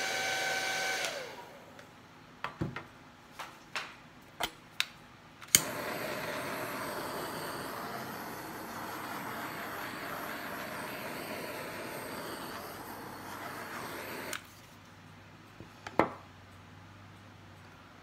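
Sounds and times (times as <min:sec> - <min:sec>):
torch shut-off click: 0:05.4 - 0:14.5
butane torch flame hissing: 0:05.5 - 0:14.6.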